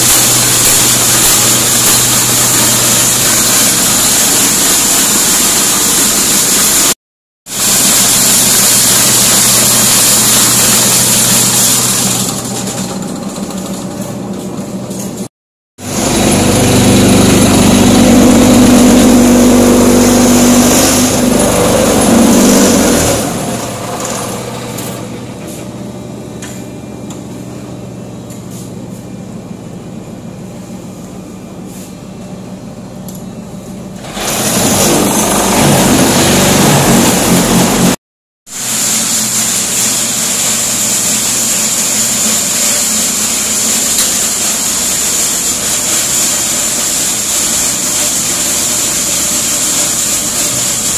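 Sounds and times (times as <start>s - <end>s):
machine drone: 0.0s - 15.2s, 15.8s - 28.6s, 32.4s - 38.0s, 38.6s - 50.9s
machine clatter and knocks: 7.7s - 15.3s, 34.0s - 38.0s
machine high whine: 15.8s - 28.2s.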